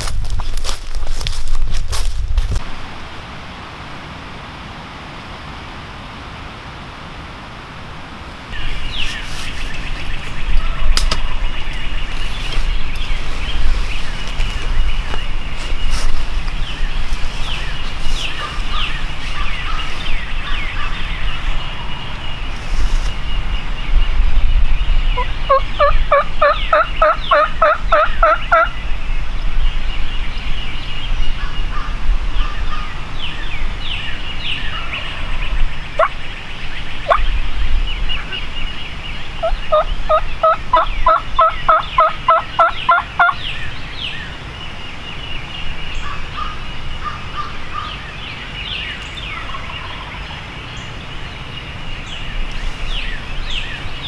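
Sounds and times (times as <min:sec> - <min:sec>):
low wind rumble: 0:00.0 - 0:54.0
songbirds chirping: 0:05.1 - 0:54.0
wild turkey yelping: 0:37.0 - 0:37.2, 0:39.4 - 0:43.4, 0:49.4 - 0:50.2.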